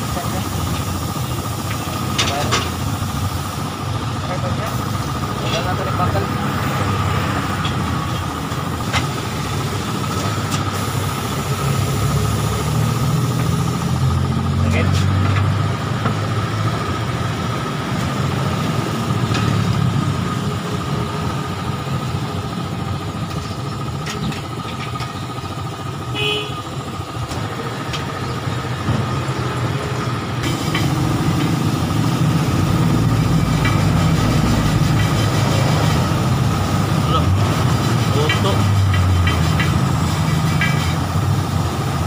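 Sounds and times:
motor humming and whining: 0.1 - 42.0.

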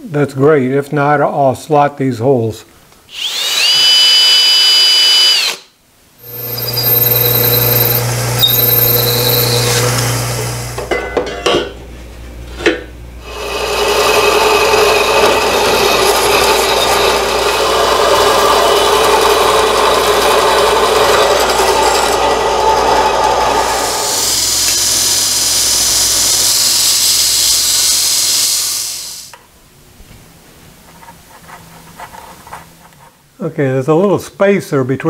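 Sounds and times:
high motor whine: 3.2 - 10.9, 13.0 - 28.2
low motor hum: 6.2 - 10.9
band saw rasping through metal: 13.2 - 26.6.

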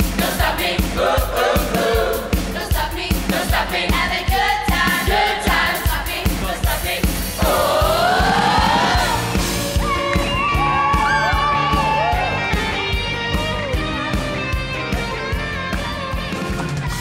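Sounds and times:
choir singing: 0.0 - 9.5.

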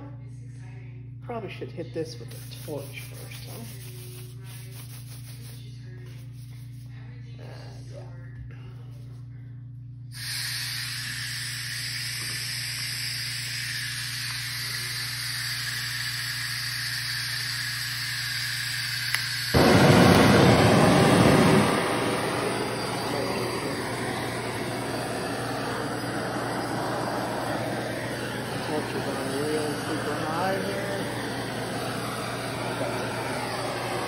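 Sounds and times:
gas torch hissing: 2.2 - 4.4, 10.1 - 34.0.

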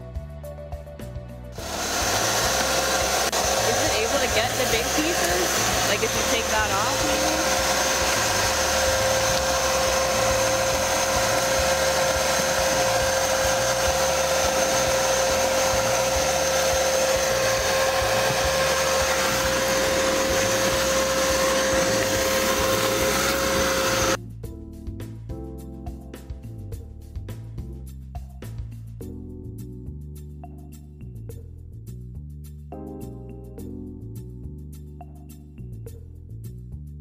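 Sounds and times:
background music: 0.0 - 37.0
shop vacuum whining: 1.6 - 24.2.

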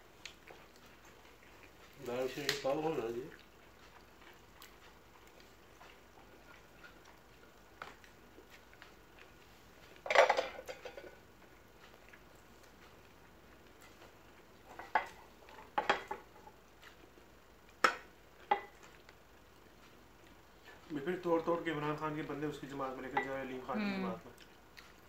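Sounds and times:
plates and spoon clattering: 10.1 - 11.2, 15.8 - 16.2.

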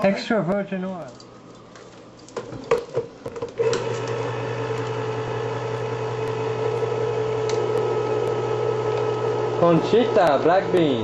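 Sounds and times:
can opener motor humming: 3.6 - 11.0.

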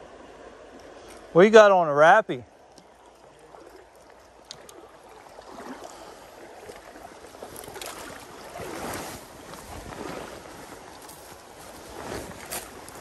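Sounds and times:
running creek: 0.0 - 13.0
brush rustling: 6.7 - 13.0.

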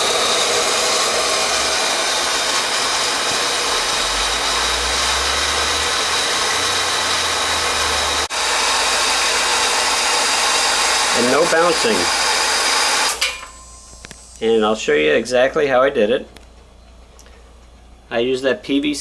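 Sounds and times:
pump motor whine: 0.0 - 14.8.

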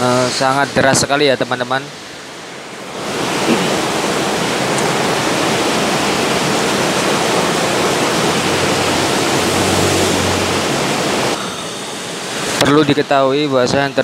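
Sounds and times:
heavy rain on road: 3.0 - 11.4
motor scooter passing: 5.0 - 12.3.

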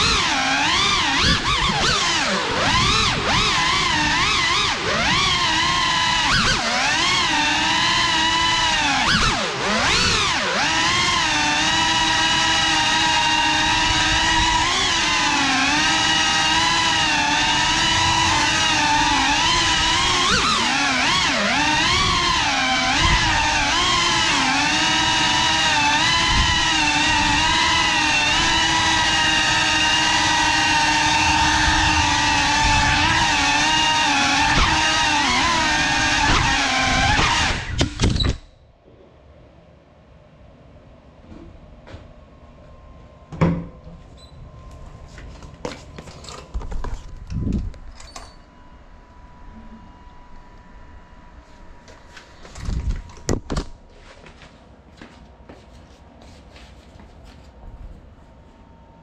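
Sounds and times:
drone motors whining: 0.0 - 38.6.

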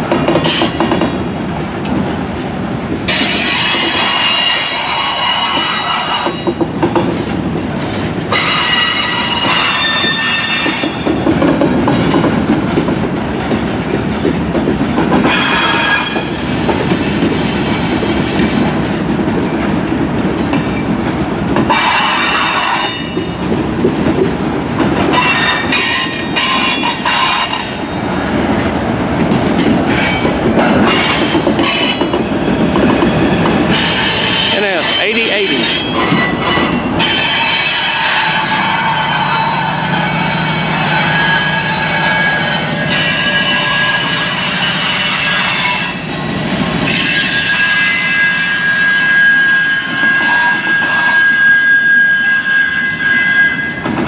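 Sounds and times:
freight cars rumbling: 0.0 - 47.5
wheel squeals: 46.8 - 53.9.

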